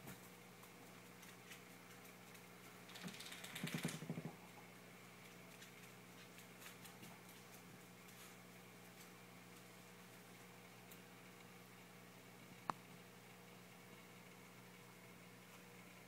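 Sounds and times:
faint low hum: 0.0 - 16.0
rapid rattle of clicks: 1.2 - 4.3.

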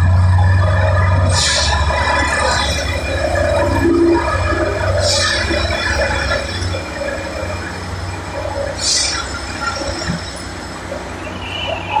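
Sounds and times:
machine engine low rumble: 0.0 - 12.0.

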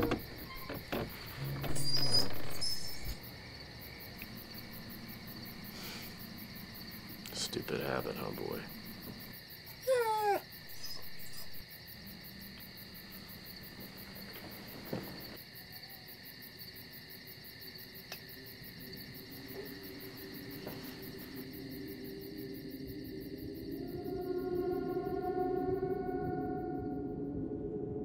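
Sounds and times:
crickets chirring: 0.0 - 28.0
animal whining: 1.4 - 3.2, 9.8 - 11.6
low drone: 21.1 - 28.0.

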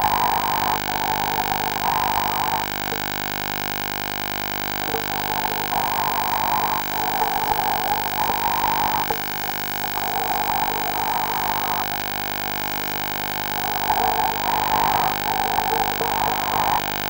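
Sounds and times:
electronic hum and whine: 0.0 - 17.0
diver breathing through microphone: 4.9 - 12.0, 13.2 - 17.0.

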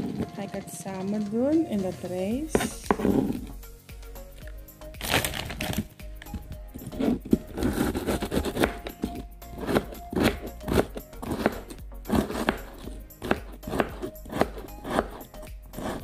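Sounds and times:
background music: 0.0 - 16.0
knife chopping on a surface: 2.4 - 3.5, 6.9 - 16.0.

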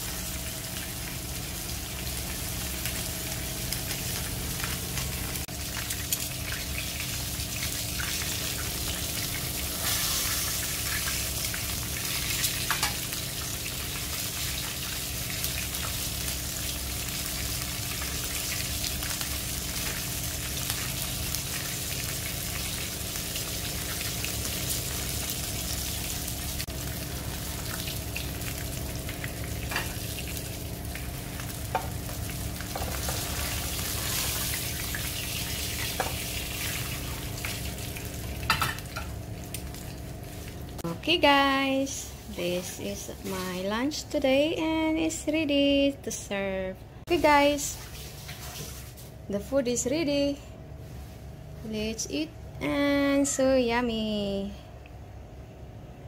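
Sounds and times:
fish sizzling in hot oil: 0.0 - 40.8
steady low hum: 0.0 - 48.1.

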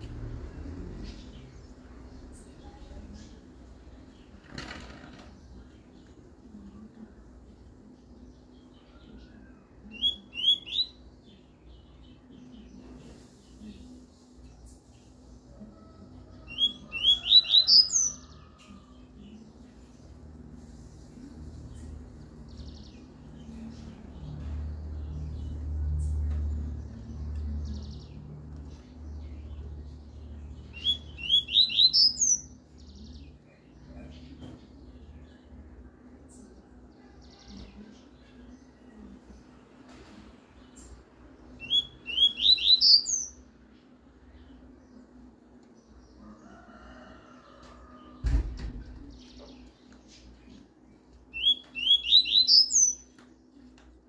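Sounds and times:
bird singing buzzy trill: 8.3 - 12.7, 16.5 - 18.3, 30.4 - 33.4, 41.5 - 43.5, 51.0 - 53.1
bird singing whistled notes: 9.9 - 11.0, 30.7 - 32.5, 41.6 - 43.4, 51.3 - 53.0
bird whistling upward notes: 41.6 - 43.1, 51.4 - 52.9.

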